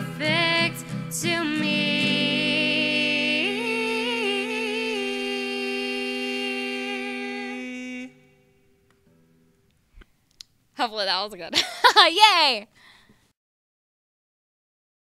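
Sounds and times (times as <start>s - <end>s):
two voices singing: 0.0s - 8.4s
acoustic guitar: 0.0s - 10.9s.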